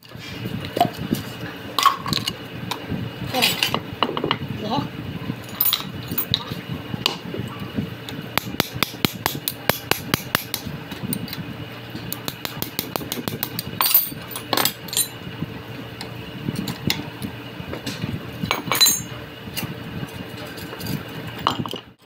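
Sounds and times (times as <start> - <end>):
metal tools clicking and clanking: 12.8 - 15.2, 18.5 - 19.1.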